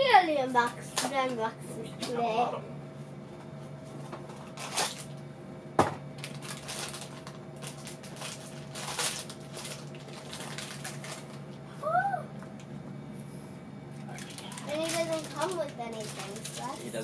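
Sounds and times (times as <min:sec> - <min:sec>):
foil wrapper crinkling: 0:04.4 - 0:05.2, 0:06.2 - 0:11.5, 0:14.1 - 0:17.0.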